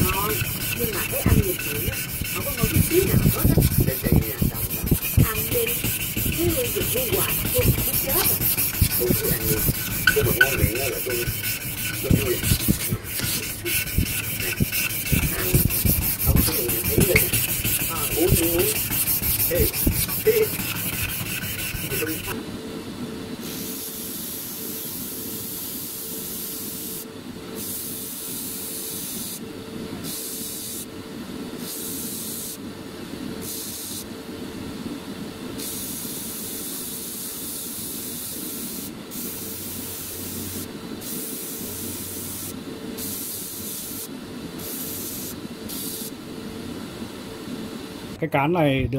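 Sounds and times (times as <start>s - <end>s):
abrasive cloth rasping on wood: 0.0s - 22.4s
electric disc sander humming: 0.0s - 22.4s
wood hissing against sanding disc: 0.0s - 22.4s.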